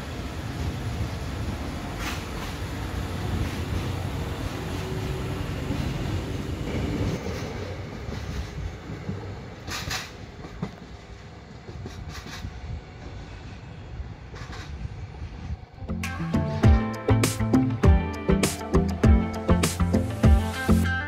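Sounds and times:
diesel train engine rumble: 0.0 - 21.0
wheels clicking over rail joints: 1.9 - 13.3, 14.2 - 15.0.

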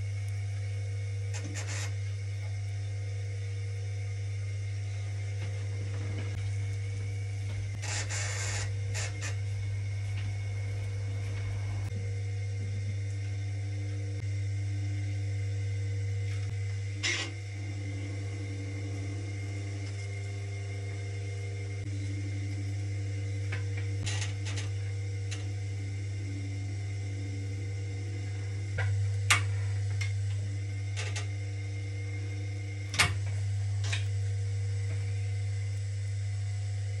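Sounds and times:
electric potter's wheel humming: 0.0 - 37.0
sharp clicks and scrapes: 1.3 - 2.0.

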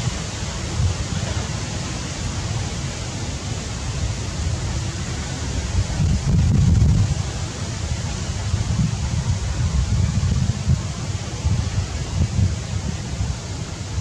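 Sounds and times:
wind buffeting microphone: 3.5 - 14.0.

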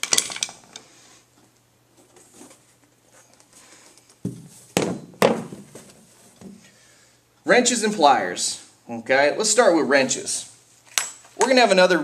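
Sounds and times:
handling rustles and knocks: 0.0 - 6.7.

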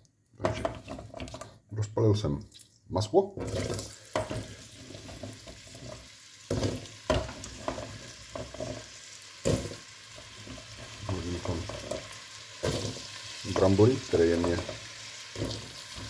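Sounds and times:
potato pieces knocking in pot: 3.4 - 16.0
potatoes sizzling in butter: 3.4 - 16.0.

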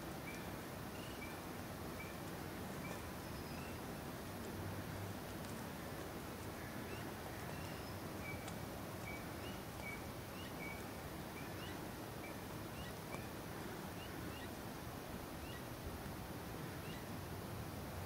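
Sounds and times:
steady hiss: 0.0 - 18.0
distant animal chirps: 0.2 - 3.9, 6.7 - 14.5.

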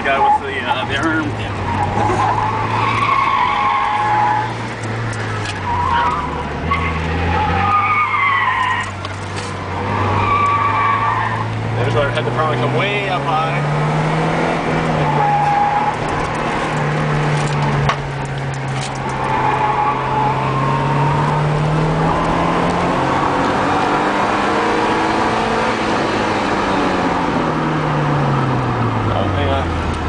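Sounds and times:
car engine from inside cabin: 8.8 - 30.0.

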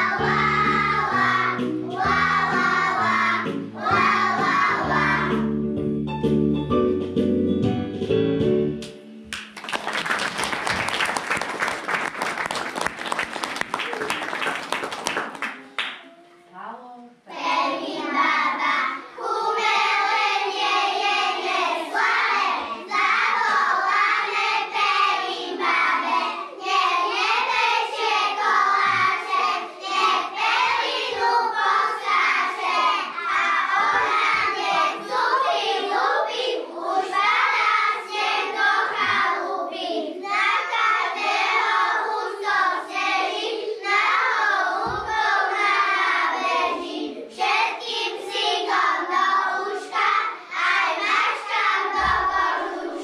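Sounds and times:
children singing in chorus: 0.0 - 5.4, 17.3 - 53.0
applause: 9.3 - 16.0.

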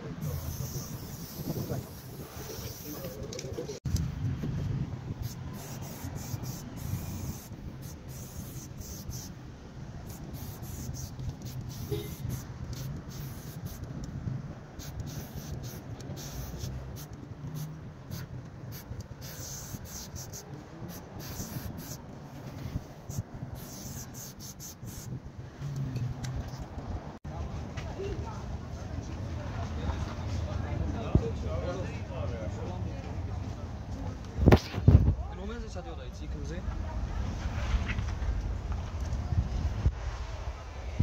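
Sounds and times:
spray paint can hissing: 0.2 - 3.8, 5.2 - 9.4, 10.0 - 14.1, 14.8 - 25.2.

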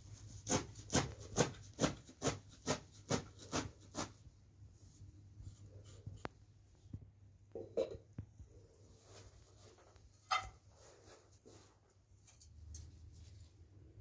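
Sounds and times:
knife chopping herbs on metal tray: 0.4 - 4.2.

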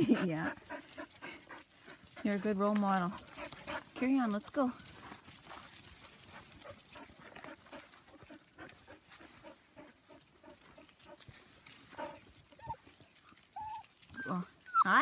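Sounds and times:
puppies making soft sounds: 0.0 - 4.2, 4.9 - 15.0
puppy whining: 12.0 - 15.0.

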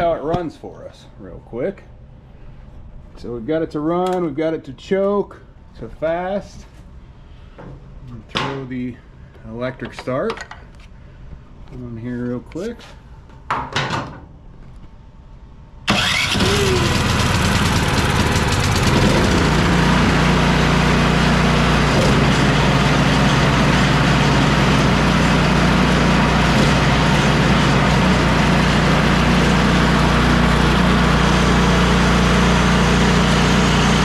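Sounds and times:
electric starter cranking: 15.9 - 34.0
snowblower engine running: 15.9 - 34.0.

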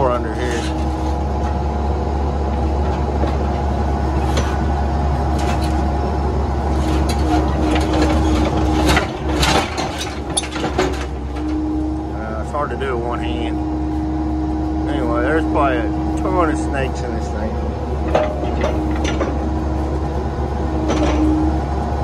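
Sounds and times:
sheet metal clanking and scraping: 0.0 - 1.6, 6.7 - 11.6, 18.0 - 19.4
diesel engine running: 0.0 - 22.0
hydraulic hum: 0.0 - 22.0.

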